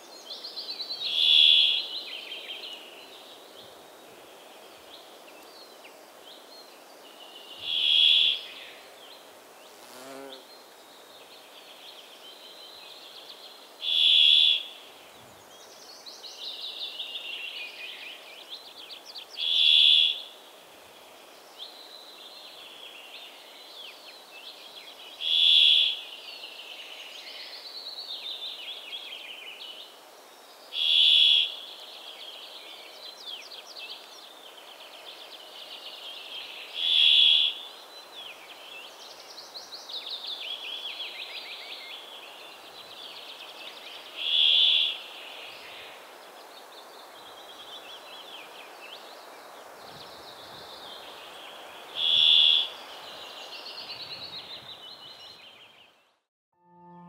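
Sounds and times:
faint twittering birdsong: 0.0s - 56.3s
bird nasal buzzes: 9.8s - 10.4s.

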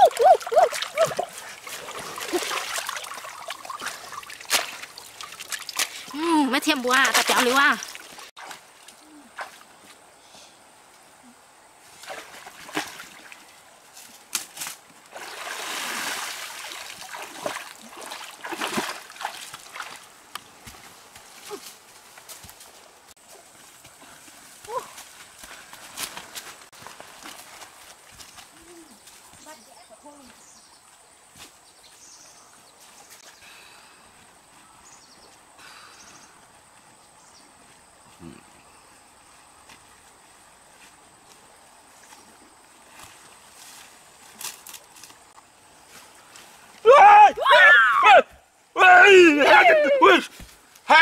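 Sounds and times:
water streaming off basket: 0.0s - 6.2s, 15.1s - 19.9s
splashing steps wading: 0.0s - 9.8s, 14.4s - 21.6s
water splashing in stream: 0.0s - 9.9s, 11.8s - 13.6s, 14.3s - 20.8s.

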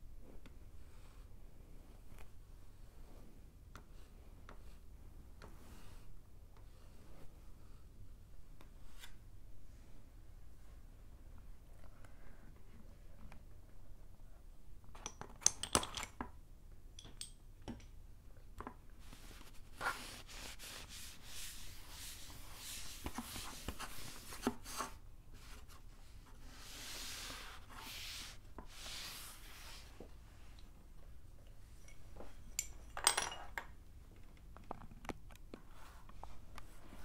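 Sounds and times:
tissue wiping board: 19.0s - 30.2s
chalk scraping on board: 19.8s - 25.0s.

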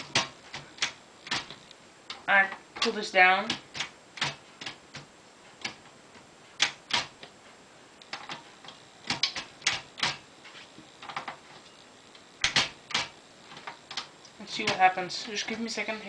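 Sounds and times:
manual typewriter clacking: 0.0s - 5.9s, 6.6s - 7.2s, 8.1s - 10.2s, 12.4s - 15.8s.

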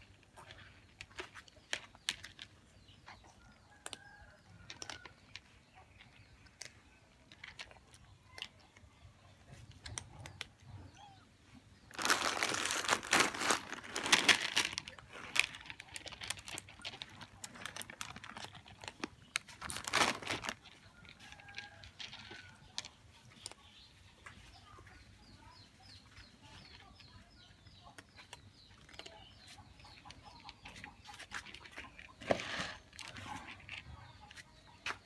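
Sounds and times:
cats crunching dry kibble: 0.0s - 8.8s, 11.9s - 23.9s, 26.1s - 34.4s
loud crinkling rustle: 11.9s - 20.8s.

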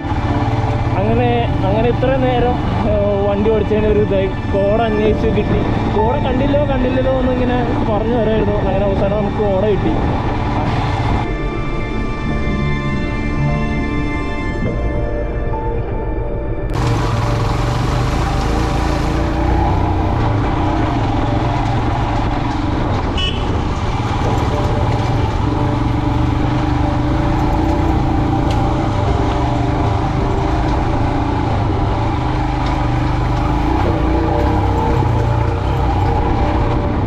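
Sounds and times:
motorcycle engine running: 0.0s - 7.9s, 16.7s - 37.0s
road noise rushing: 0.0s - 12.1s, 16.7s - 37.0s.

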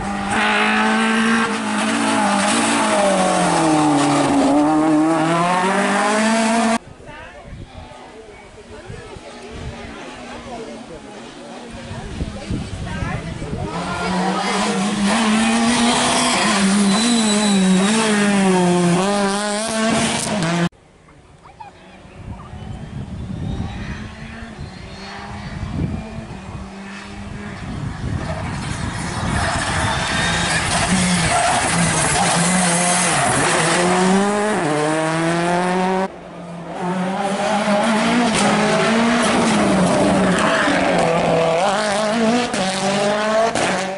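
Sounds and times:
rally car engine revving: 0.0s - 6.8s, 9.8s - 20.7s, 23.4s - 43.9s
faint outdoor background: 2.7s - 29.3s.

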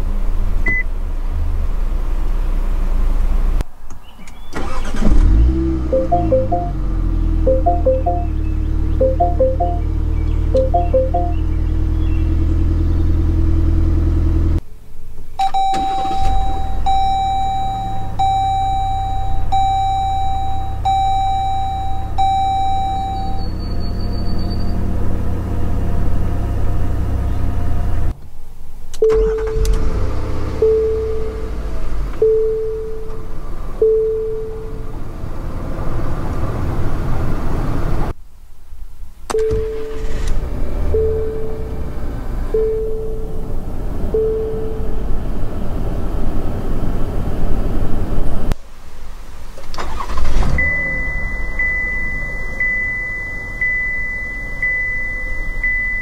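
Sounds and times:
car engine starting: 0.0s - 14.7s, 15.4s - 38.2s, 39.3s - 56.0s
car engine idling: 4.5s - 14.9s, 15.5s - 37.0s, 39.3s - 47.3s, 48.0s - 56.0s
dashboard warning chime beeping: 5.8s - 11.5s, 15.4s - 24.6s, 30.6s - 31.5s, 32.2s - 34.9s, 39.3s - 40.2s, 40.9s - 41.8s, 42.5s - 43.5s, 44.1s - 45.0s, 49.8s - 56.0s
lower-pitched chime beeping: 5.9s - 10.0s, 10.6s - 11.5s, 15.4s - 23.8s, 42.5s - 43.4s, 44.2s - 44.9s, 50.6s - 56.0s.

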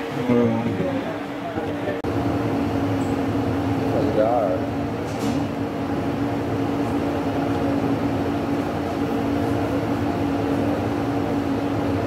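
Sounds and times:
air conditioner hum: 0.0s - 12.0s.

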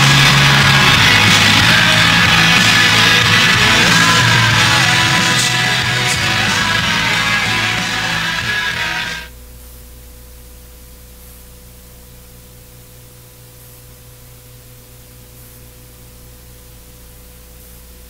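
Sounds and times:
rock music: 0.0s - 9.3s
electrical hum and hiss: 0.0s - 18.0s.

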